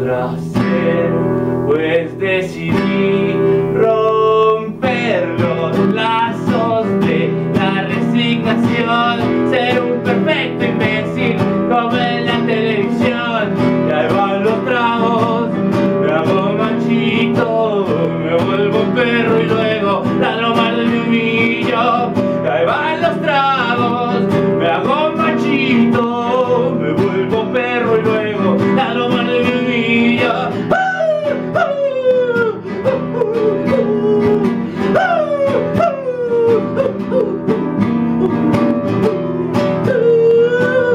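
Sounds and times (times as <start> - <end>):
man singing: 0.0 - 40.9
strummed acoustic guitar: 0.0 - 40.9.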